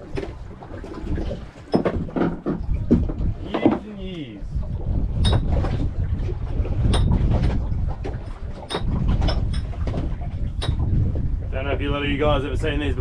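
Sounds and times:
wind buffeting microphone: 0.0 - 13.0
sharp clicks and knocks: 6.9 - 10.9.

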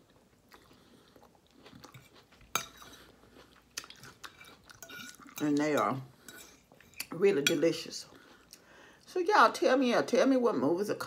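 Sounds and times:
person chewing: 0.0 - 7.1.

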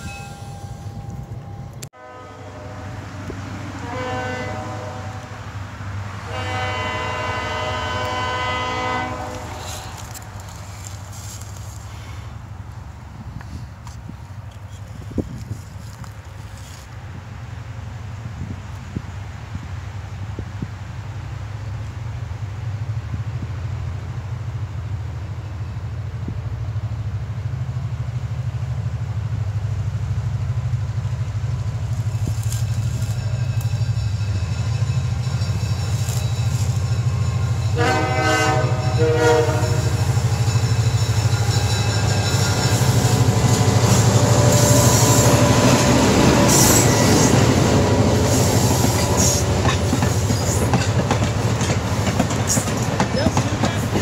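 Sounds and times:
diesel locomotive engine hum: 0.0 - 54.0
train horn blasts: 2.0 - 10.4, 32.4 - 50.7
train wheels rumbling and clattering: 26.1 - 54.0.

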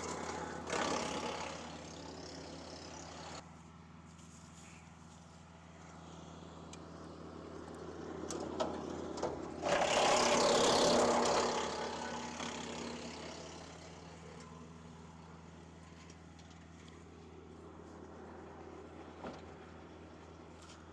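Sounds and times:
chipper grinding a branch: 0.0 - 20.9
wood chipper running: 0.0 - 20.9.

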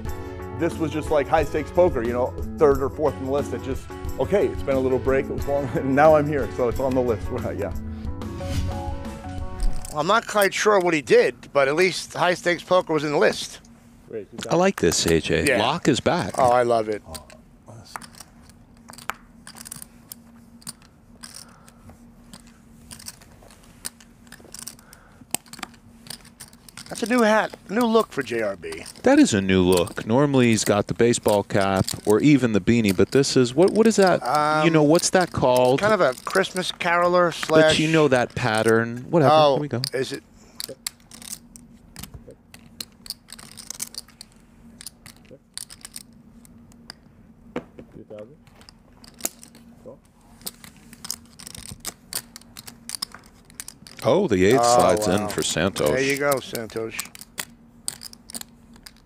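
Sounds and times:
faint steady hum: 9.1 - 59.0
poker chips clicking: 9.6 - 11.0, 14.8 - 47.0, 48.6 - 49.7, 50.3 - 59.0
paper money rustling: 22.3 - 40.2, 50.3 - 57.0.

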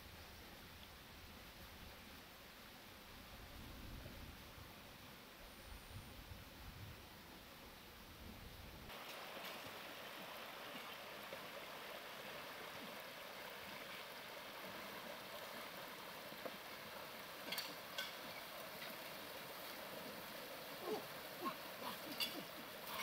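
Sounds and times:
stream running over rocks: 8.8 - 23.0.

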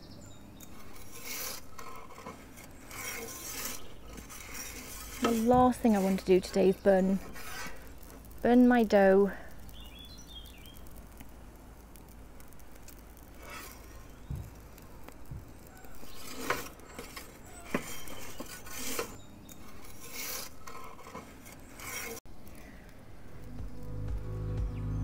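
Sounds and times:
metal peel scraping baking stone: 0.6 - 8.2, 13.4 - 14.2, 15.8 - 22.2.

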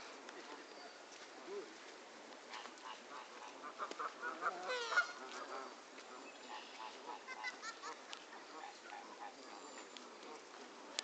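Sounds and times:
geese honking: 2.5 - 10.8.

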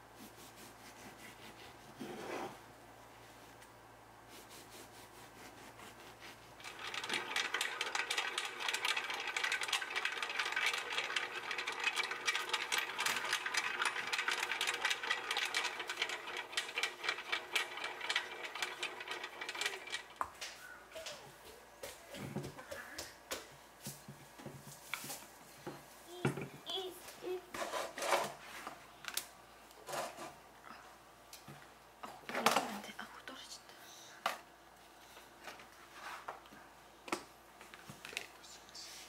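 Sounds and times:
bread machine motor turning: 6.6 - 20.2
dough slapping in metal pan: 6.6 - 20.5.

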